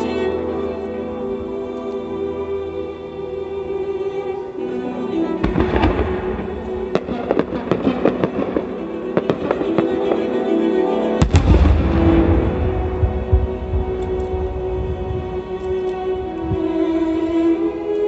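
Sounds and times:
background music: 0.0 - 18.0
firework bangs and crackles: 5.4 - 10.3, 11.2 - 14.5
deep firework boom: 11.2 - 14.0.

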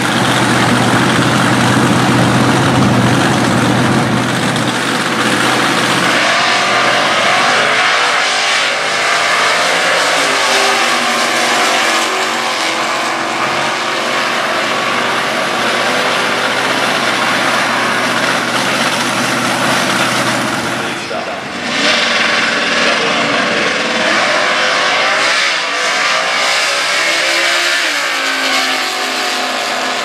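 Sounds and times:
drag car engines accelerating: 0.0 - 30.0.

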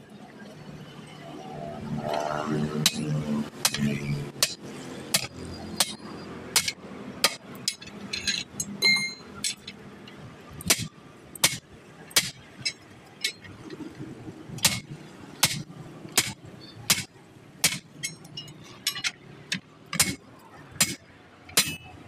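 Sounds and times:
hammer blows ringing on steel: 2.8 - 7.4, 21.6 - 22.0.

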